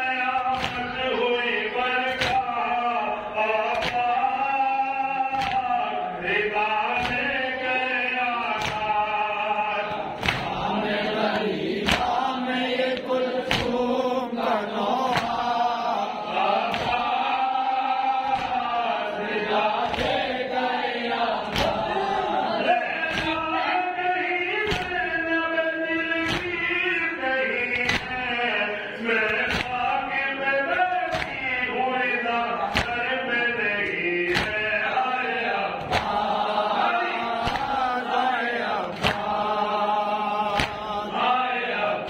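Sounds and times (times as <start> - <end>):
men chanting a lament: 0.0 - 42.0.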